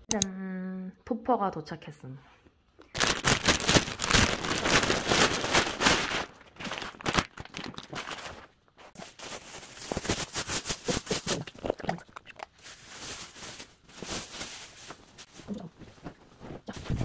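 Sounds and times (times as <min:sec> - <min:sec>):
plastic packaging crinkling: 0:02.8 - 0:16.1.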